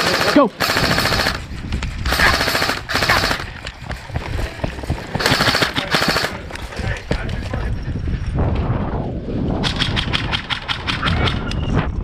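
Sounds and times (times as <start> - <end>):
airsoft gun full-auto bursts: 0.0 - 1.5, 2.1 - 3.5, 5.2 - 6.4
running footsteps on grass: 1.5 - 8.0.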